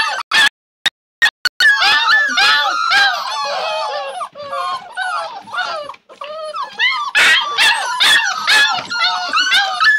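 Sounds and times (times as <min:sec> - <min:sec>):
puppies whining and yipping: 0:00.0 - 0:00.5, 0:01.6 - 0:09.9.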